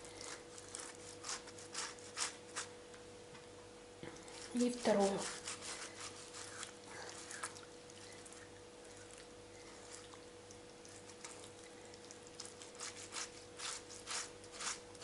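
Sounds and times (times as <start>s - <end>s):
tomato grated on metal grater: 0.0s - 2.7s, 4.3s - 7.4s, 12.4s - 15.0s.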